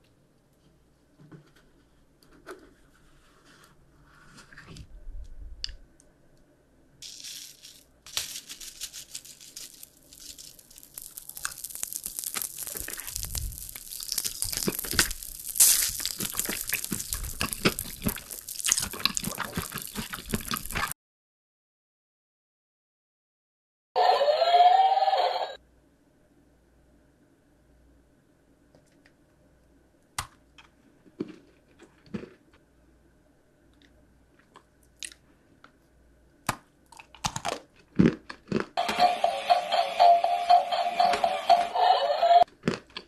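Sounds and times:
candy wrapper crinkling: 0:07.0 - 0:20.9.

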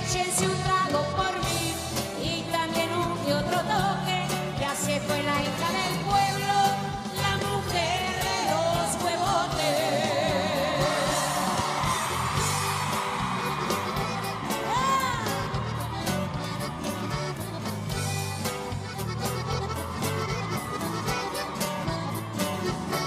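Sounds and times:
person singing: 0:00.0 - 0:12.8.

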